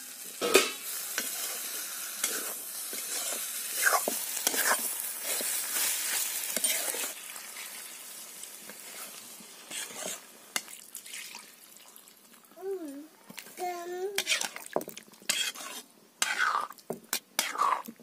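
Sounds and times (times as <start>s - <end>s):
vegetables sizzling in a wok: 0.0s - 18.0s
metal ladle scraping a pan: 0.4s - 7.2s, 8.7s - 11.2s, 14.2s - 17.9s.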